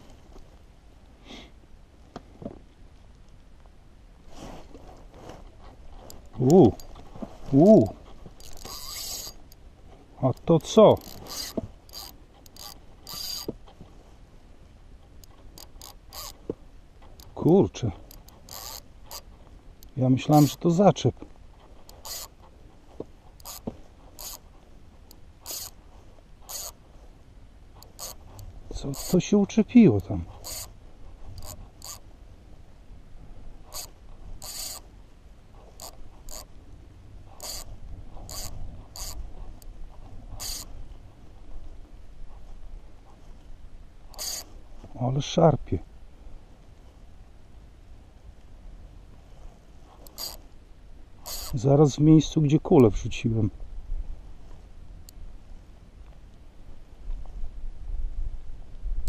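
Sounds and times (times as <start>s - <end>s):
fishing reel clicking and ratcheting: 8.4s - 9.6s, 10.4s - 13.5s, 15.2s - 16.4s, 18.1s - 20.6s, 21.9s - 22.4s, 23.4s - 23.6s, 24.2s - 24.4s, 25.1s - 25.8s, 26.5s - 26.8s, 27.8s - 29.2s, 30.4s - 30.7s, 31.4s - 32.0s, 33.7s - 34.8s, 35.8s - 36.5s, 37.4s - 37.7s, 38.3s - 39.2s, 40.4s - 40.7s, 44.1s - 44.5s, 50.0s - 50.4s, 51.2s - 51.6s.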